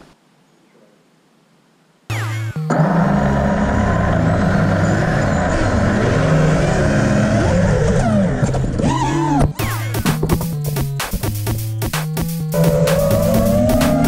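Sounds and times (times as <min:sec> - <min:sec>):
electronic bass line: 0:02.1 - 0:08.4, 0:09.5 - 0:14.0.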